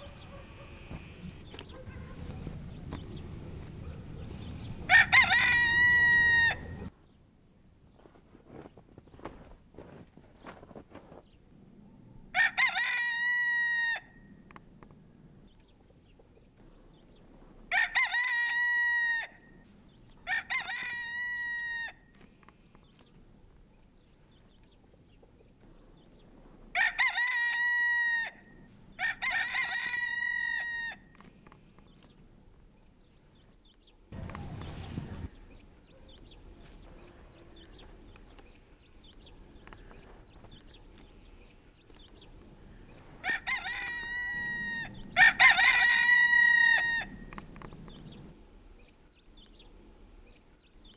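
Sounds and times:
rooster crowing: 4.9 - 6.9, 12.4 - 14.2, 17.7 - 19.5, 20.2 - 22.0, 26.7 - 31.1, 43.2 - 47.3.

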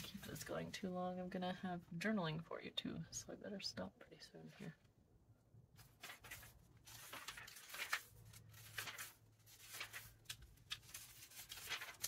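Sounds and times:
magazine pages turning: 5.8 - 12.0.

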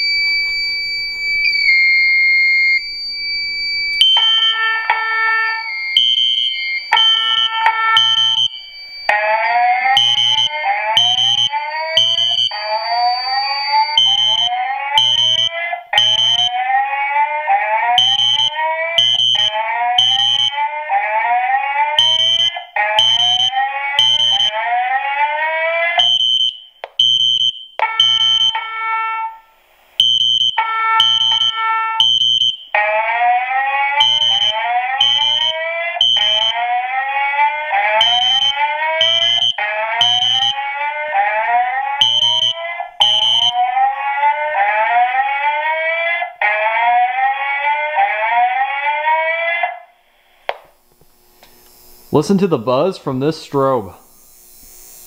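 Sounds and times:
fire alarm whoops: 0.0 - 50.0
high-pitched horn beeps: 4.0 - 16.5, 34.0 - 36.6, 37.9 - 40.6
alarm chime tones: 4.0 - 16.6, 22.0 - 24.6, 34.0 - 36.7, 37.7 - 40.7, 41.9 - 43.6.

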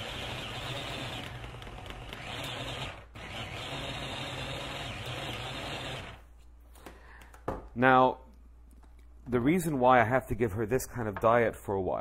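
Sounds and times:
immersion blender grinding meat: 0.0 - 6.2.

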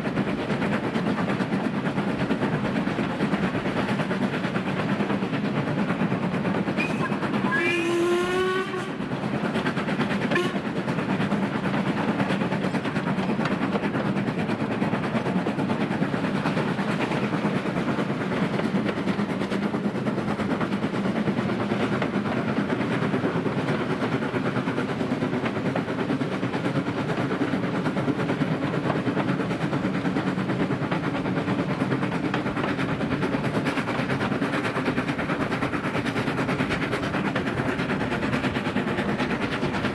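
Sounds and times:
steam locomotive exhaust: 0.0 - 39.9
steam whistle: 6.8 - 9.0, 10.3 - 10.6.

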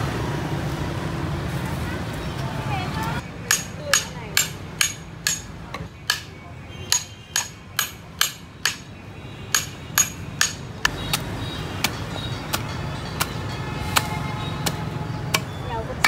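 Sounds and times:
hammer striking knife: 3.5 - 5.5, 6.1 - 6.3, 6.9 - 8.9, 9.5 - 11.2.

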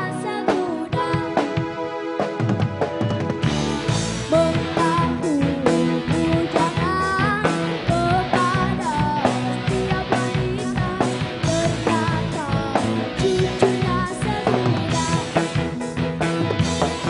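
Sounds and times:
person singing into a microphone: 0.0 - 1.7, 4.3 - 15.4
live rock band playing: 0.0 - 17.0.

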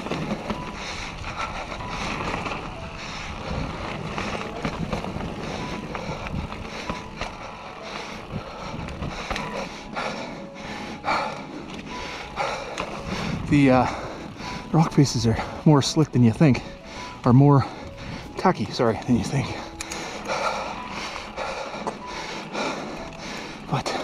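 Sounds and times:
wind noise on microphone: 0.0 - 7.4, 13.0 - 14.7
tyre noise: 0.0 - 10.2
bike clicking and rattling: 0.0 - 24.0.

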